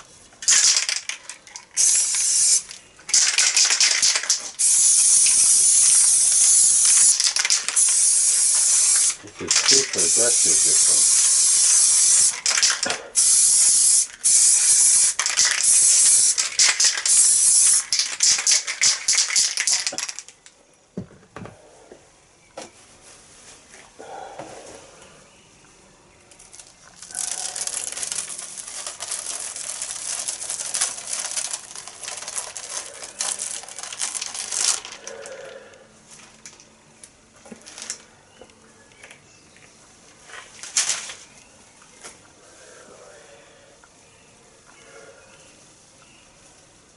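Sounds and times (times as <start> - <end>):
spray paint can hissing: 0.4 - 20.2, 27.0 - 35.1.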